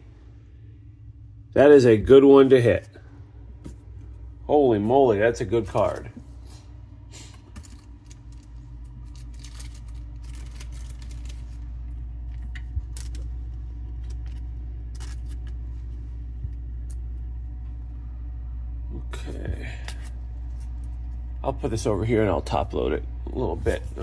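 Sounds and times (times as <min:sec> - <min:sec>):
steady low hum: 0:00.0 - 0:24.0
plastic sleeve crinkling: 0:05.6 - 0:16.1.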